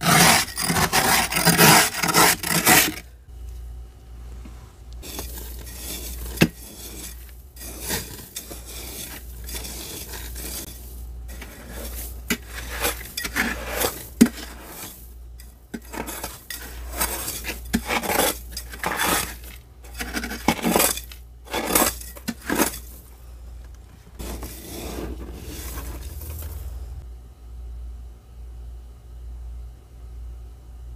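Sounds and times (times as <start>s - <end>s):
spoon scraping frost: 0.0s - 3.2s, 5.0s - 23.2s, 24.2s - 27.0s.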